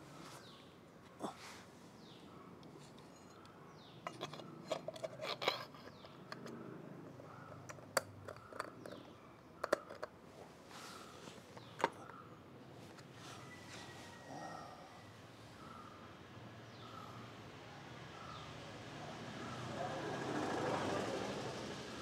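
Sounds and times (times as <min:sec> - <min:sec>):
tools clicking and clinking: 0:02.9 - 0:06.6, 0:07.5 - 0:10.2, 0:11.5 - 0:12.2.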